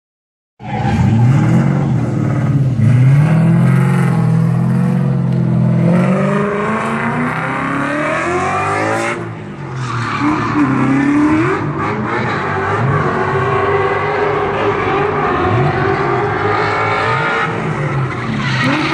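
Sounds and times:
car engine revving hard: 0.8s - 9.4s
tyre squeal: 17.9s - 18.9s.

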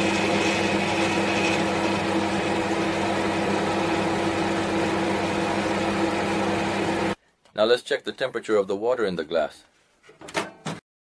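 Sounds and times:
microwave oven hum: 0.0s - 7.2s.

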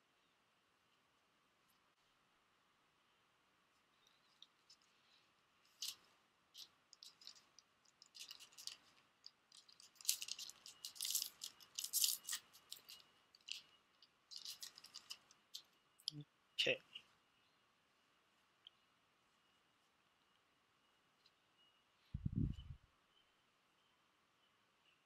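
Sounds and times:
trading cards being handled: 5.6s - 15.8s
foil wrapper crinkling: 5.7s - 15.7s.

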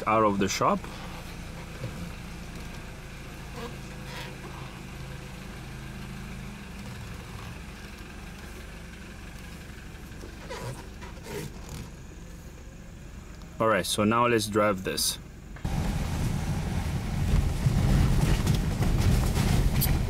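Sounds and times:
car engine humming: 0.0s - 20.0s.

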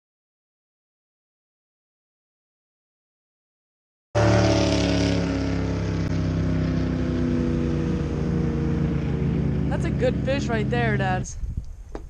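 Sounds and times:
engine running steadily: 4.2s - 12.0s.

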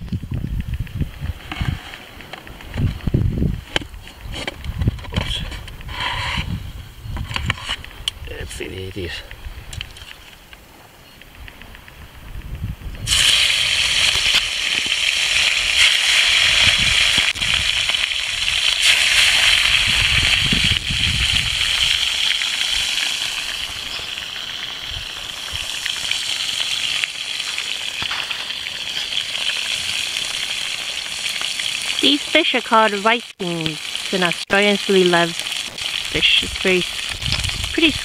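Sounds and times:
fish sizzling in a frying pan: 13.1s - 38.0s.

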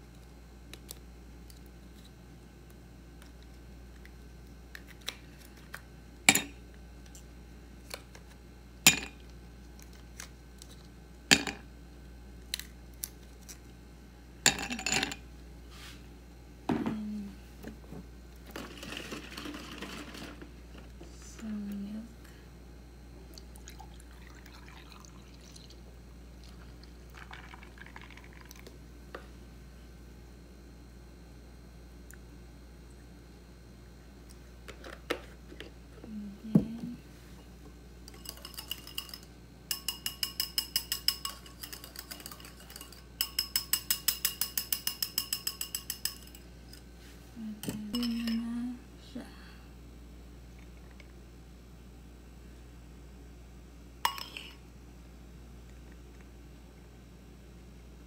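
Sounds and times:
milk pouring over ice: 23.5s - 25.8s, 26.5s - 28.7s.

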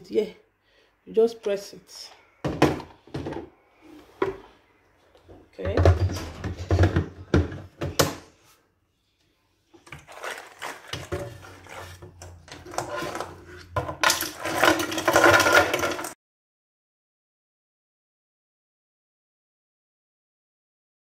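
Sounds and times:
ice cubes clattering into plastic pitcher: 9.8s - 16.2s.

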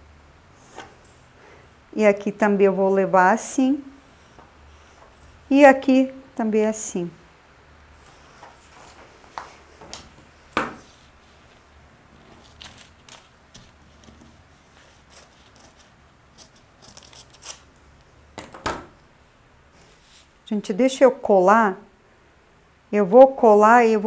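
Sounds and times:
paper rustling: 8.0s - 17.7s.

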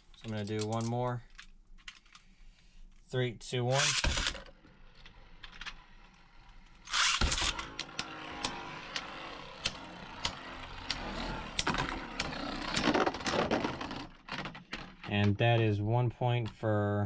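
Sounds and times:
spinning tops clacking: 3.7s - 14.2s
grinding clash of tops: 3.7s - 14.3s
spinning tops whirring: 3.7s - 14.3s
spinning top launch rush: 6.8s - 14.2s.

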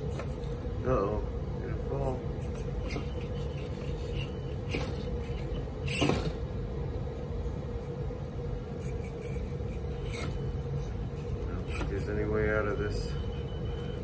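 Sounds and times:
small electric motor whining: 2.0s - 6.4s, 8.6s - 14.0s.

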